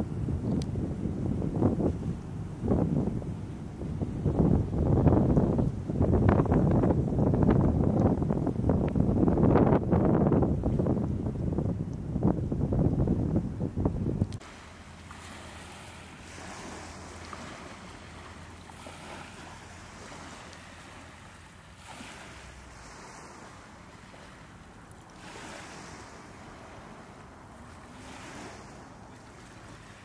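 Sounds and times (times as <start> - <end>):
wind noise on microphone: 0.0 - 30.0
small waves washing: 14.3 - 30.0.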